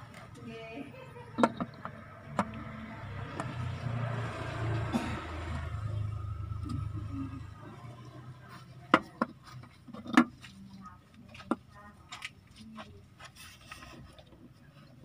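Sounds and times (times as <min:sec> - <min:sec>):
plastic clicks and knocks: 0:01.4 - 0:02.6.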